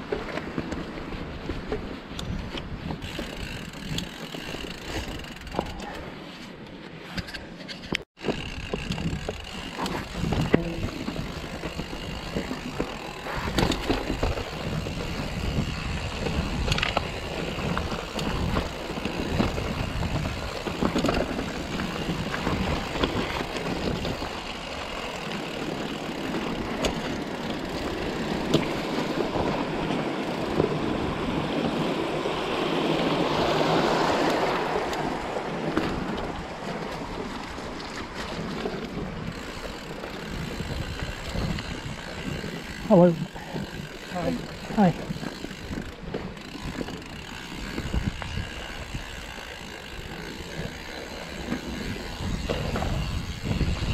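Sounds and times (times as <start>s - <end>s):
bike knocking and rattling: 0.0s - 53.9s
tyres crunching over loose stones: 8.2s - 30.8s.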